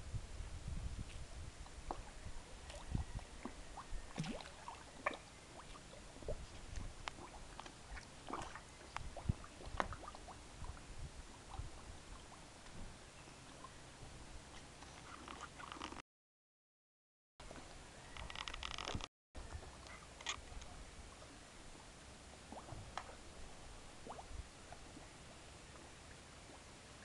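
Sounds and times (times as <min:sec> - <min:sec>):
fish splashing and slurping water: 0:01.7 - 0:12.8, 0:14.4 - 0:16.0, 0:22.3 - 0:27.0.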